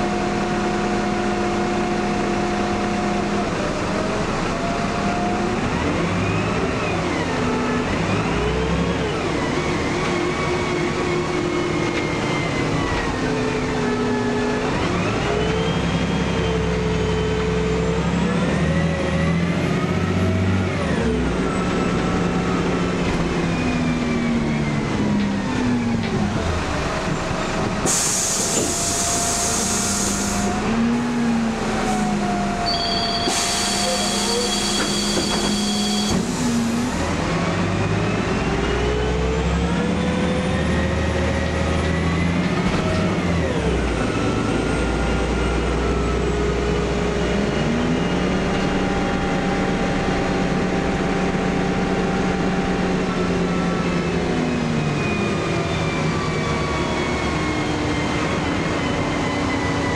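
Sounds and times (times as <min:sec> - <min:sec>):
bus engine whine: 0:00.0 - 0:59.9
compressed air hiss: 0:27.8 - 0:30.5.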